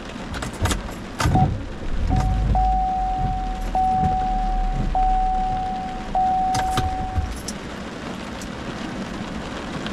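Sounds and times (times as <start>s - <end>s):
heavy rain on car: 0.0s - 9.9s
car warning chime: 1.4s - 7.4s.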